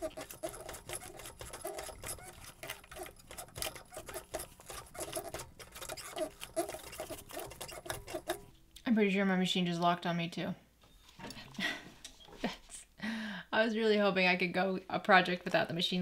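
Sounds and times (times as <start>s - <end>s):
sewing machine stitching: 0.0s - 8.5s.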